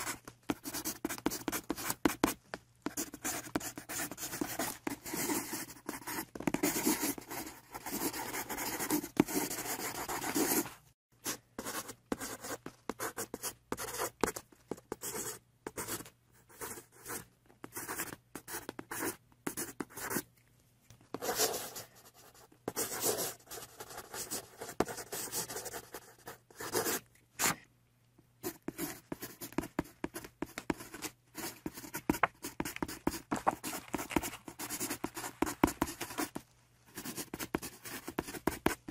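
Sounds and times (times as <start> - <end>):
marker scribbling on paper: 0.0 - 20.2, 28.5 - 36.4, 37.0 - 38.9.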